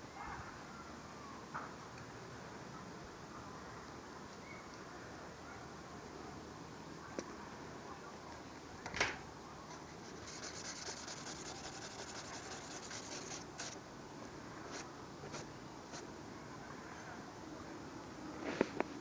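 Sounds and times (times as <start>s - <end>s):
rubbing on paper: 9.7s - 13.8s, 14.7s - 16.1s
swipe across paper: 9.8s - 13.8s, 14.7s - 16.1s.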